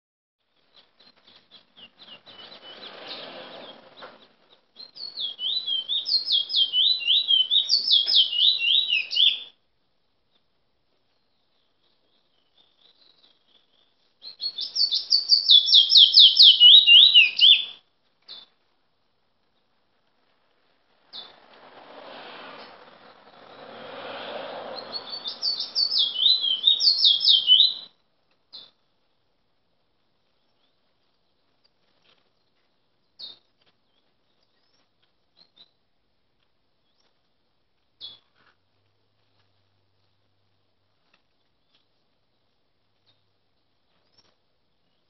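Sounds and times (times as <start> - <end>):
finch singing whistled notes: 0.6 - 9.5, 11.2 - 18.5, 24.7 - 27.9.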